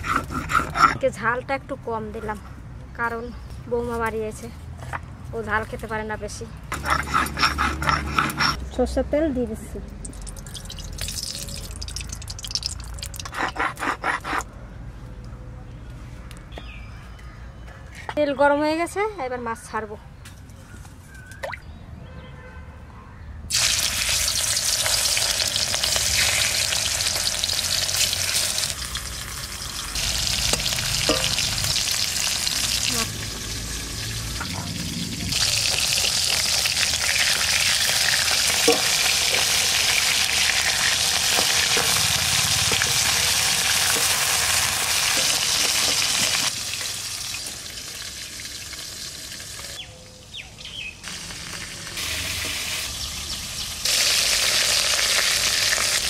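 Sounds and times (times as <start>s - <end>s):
spatula scraping a wok: 0.0s - 1.1s, 6.7s - 8.6s, 40.5s - 46.5s
fish sizzling in hot oil: 10.2s - 13.2s, 23.5s - 49.8s, 51.1s - 56.0s.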